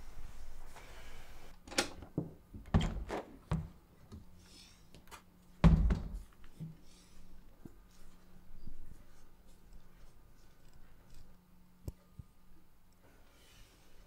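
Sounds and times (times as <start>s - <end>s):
heavy door thump: 5.6s - 6.2s.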